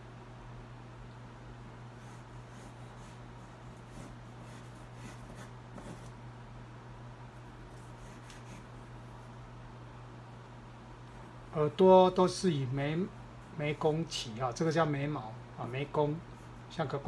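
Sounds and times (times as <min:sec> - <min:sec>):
steady low hum: 0:00.0 - 0:17.0
crayon scratching on paper: 0:02.0 - 0:06.1, 0:07.7 - 0:08.7.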